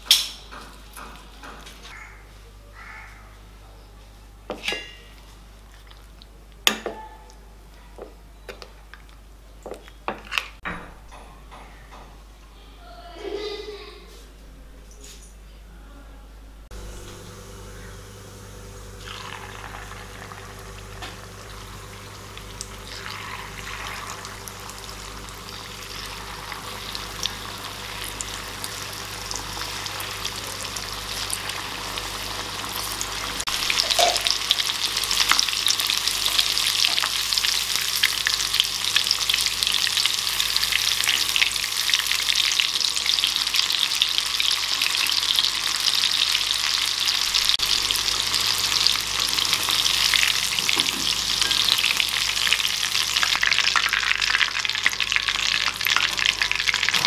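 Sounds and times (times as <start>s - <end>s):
chicken sizzling in hot oil: 16.7s - 57.0s.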